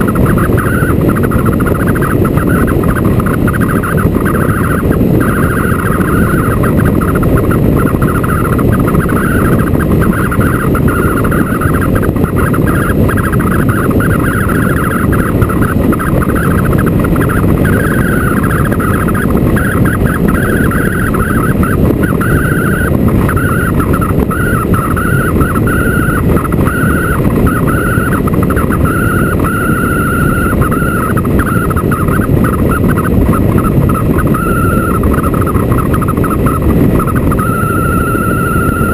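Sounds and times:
motorcycle engine running: 0.0 - 38.9
wind rushing on microphone: 0.0 - 38.9.

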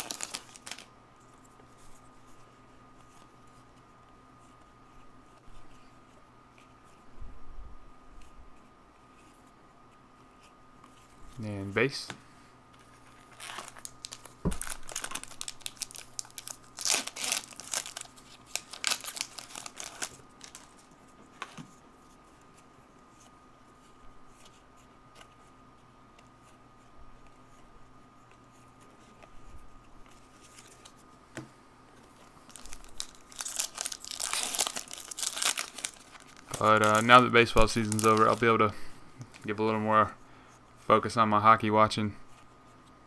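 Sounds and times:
foil pack tearing open: 0.0 - 0.9, 13.3 - 20.7, 32.5 - 38.4
foil wrappers crinkling: 0.0 - 0.9, 13.1 - 20.9, 32.4 - 39.6
cards being shuffled: 0.0 - 1.9, 12.8 - 21.7, 32.5 - 38.6.

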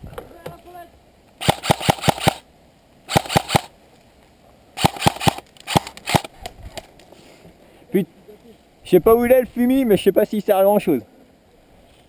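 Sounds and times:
airsoft rifle firing bursts: 1.4 - 2.4, 3.1 - 3.7, 4.8 - 6.3
man talking: 7.9 - 11.1.

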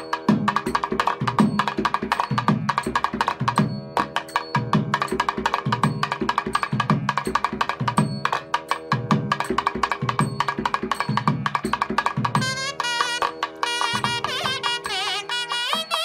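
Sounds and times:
drum strokes: 0.0 - 16.0
held pitched notes: 12.4 - 16.0.

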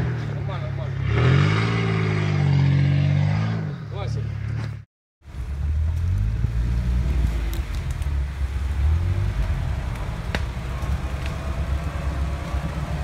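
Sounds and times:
vehicle engine running low: 4.2 - 13.0.

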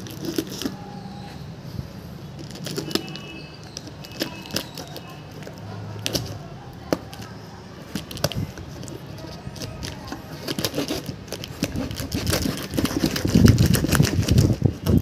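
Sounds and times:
blade cutting packing tape: 0.0 - 0.8, 2.4 - 6.4, 8.0 - 15.0
cardboard rustling and scraping: 0.0 - 1.4, 2.3 - 15.0.

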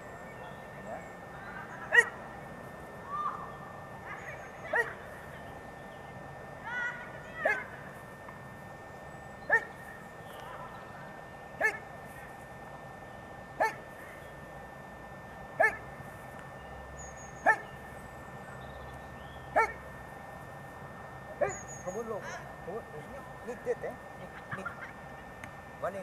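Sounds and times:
dog barking: 1.9 - 2.2, 4.7 - 5.0, 7.4 - 7.7, 9.5 - 9.7, 11.6 - 11.8, 13.6 - 13.8, 15.6 - 15.8, 17.4 - 17.7, 19.6 - 19.8, 21.4 - 21.7.

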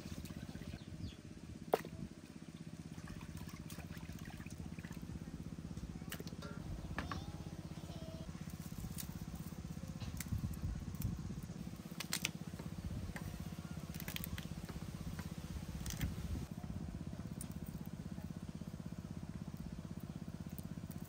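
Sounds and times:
low engine-like drone: 0.0 - 21.0
garlic skins crackling: 8.4 - 12.5, 13.8 - 14.7.

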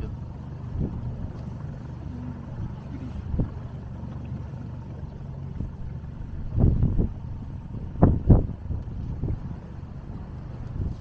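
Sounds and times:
motorboat engine rumble: 0.0 - 11.0
wind thumping on microphone: 0.6 - 1.8, 2.4 - 3.8, 5.5 - 11.0.

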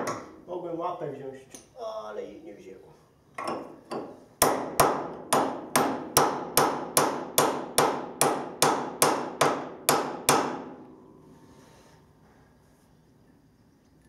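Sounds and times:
hammer striking chisel on steel: 3.4 - 10.7.

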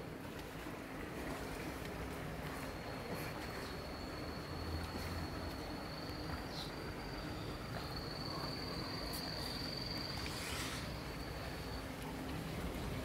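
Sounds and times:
cricket trilling: 2.8 - 12.0
brief rustle: 10.2 - 11.0.

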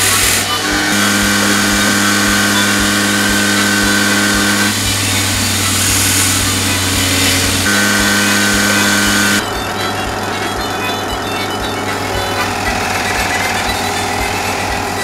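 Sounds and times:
belt grinder motor hum: 0.0 - 15.0.

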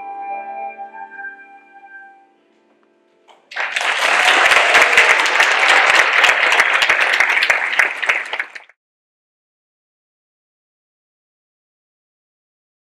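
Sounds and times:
audience applauding: 3.4 - 8.8.

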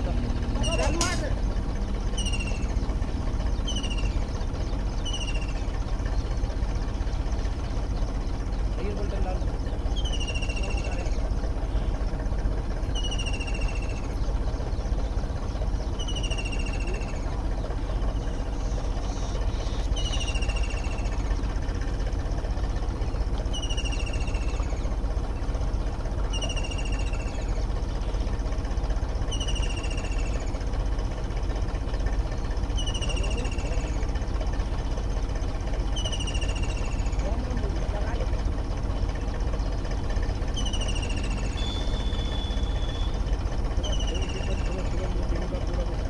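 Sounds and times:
tractor diesel engine running: 0.0 - 46.0
bird whistling: 0.5 - 6.4, 9.7 - 11.2, 12.9 - 14.9, 15.8 - 17.3, 18.2 - 21.2, 23.5 - 24.9, 26.3 - 27.6, 29.3 - 30.6, 32.7 - 34.0, 35.9 - 37.2, 40.5 - 44.8.

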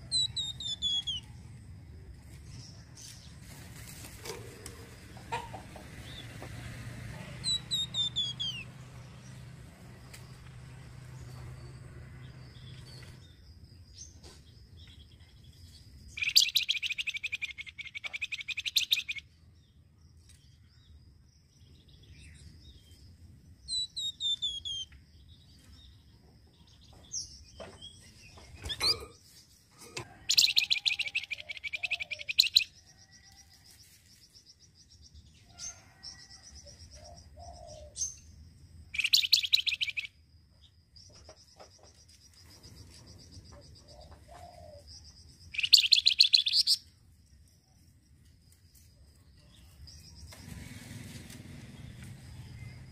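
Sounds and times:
bird chirps and whistles: 0.1 - 1.2, 7.5 - 8.6, 16.2 - 19.2, 39.0 - 40.1, 45.6 - 46.8
songbird rattling trill: 16.1 - 19.3, 30.3 - 32.8, 38.9 - 40.1, 45.4 - 46.8.

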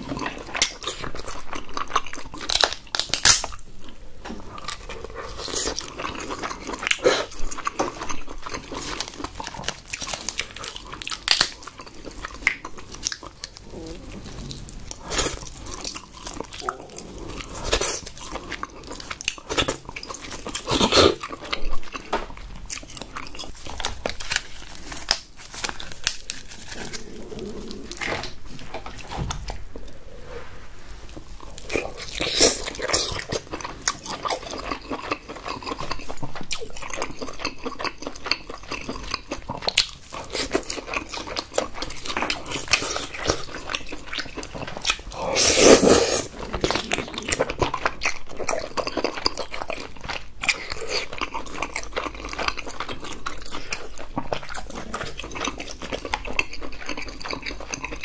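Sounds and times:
wet chewing and mouth smacks: 31.2 - 58.0.

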